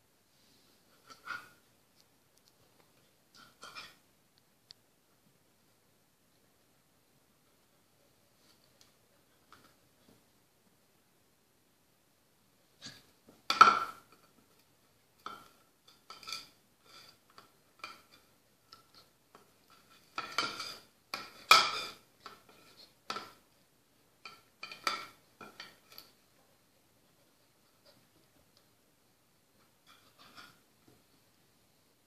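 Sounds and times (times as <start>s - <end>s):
brush clattering on tile floor: 3.3s - 4.0s, 12.8s - 23.5s, 24.2s - 26.2s, 29.6s - 31.0s.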